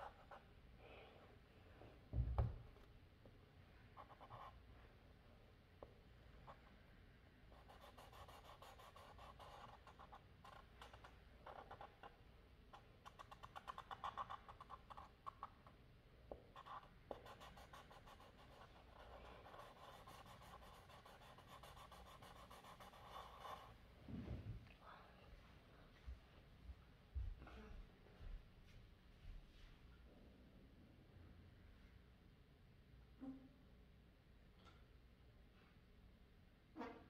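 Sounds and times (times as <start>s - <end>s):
marker scratching on paper: 0.0s - 0.5s, 4.0s - 4.6s, 7.5s - 23.8s.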